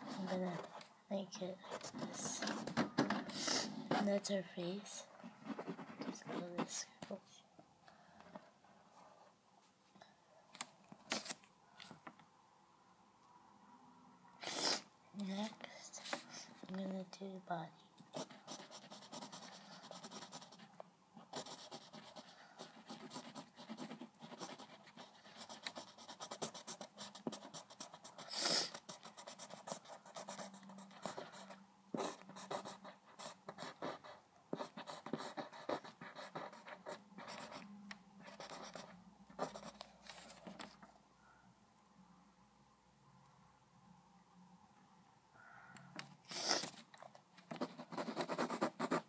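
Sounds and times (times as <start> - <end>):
pencil scratching on paper: 0.0 - 6.9, 18.1 - 37.6, 38.2 - 40.7, 47.5 - 49.0.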